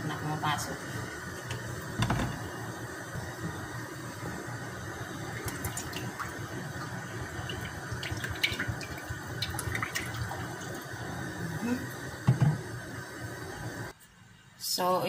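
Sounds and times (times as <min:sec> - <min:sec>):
oil pouring into frying pan: 0:05.0 - 0:11.1.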